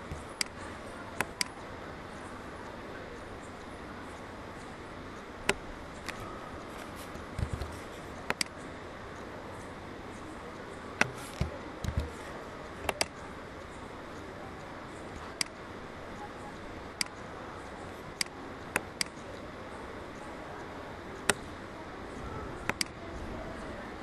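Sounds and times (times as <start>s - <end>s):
computer mouse clicking: 5.4s - 8.6s, 11.0s - 13.3s, 15.2s - 15.6s, 18.1s - 19.4s, 21.2s - 21.5s, 22.6s - 23.0s.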